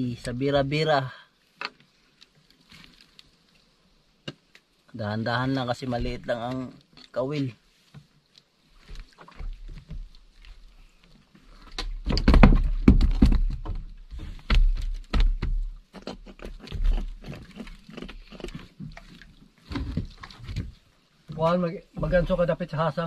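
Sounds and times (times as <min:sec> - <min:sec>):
knocks on boat: 0:12.1 - 0:13.9.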